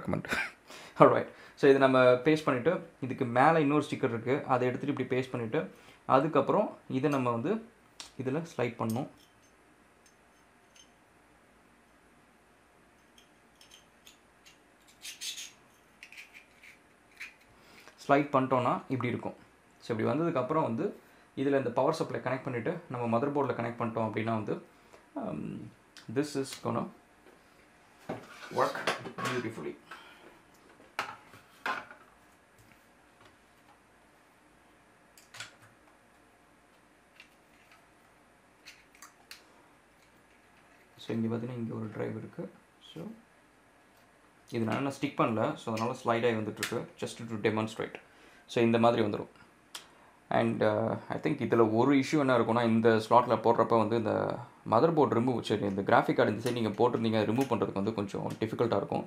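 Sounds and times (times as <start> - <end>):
clicks and knocks of handled hardware: 13.0 - 15.4.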